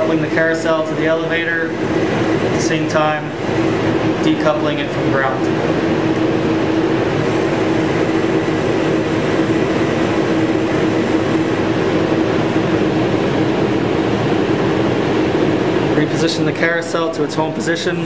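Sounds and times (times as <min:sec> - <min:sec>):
mechanical hum with low tone: 0:00.0 - 0:18.0.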